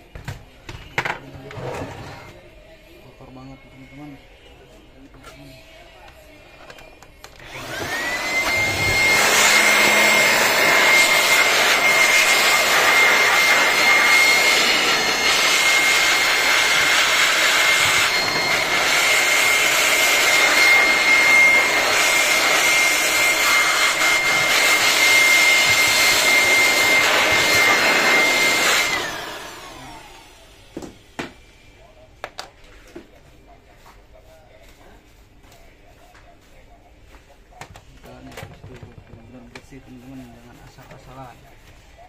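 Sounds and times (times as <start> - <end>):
electric air blower running: 7.4 - 31.3.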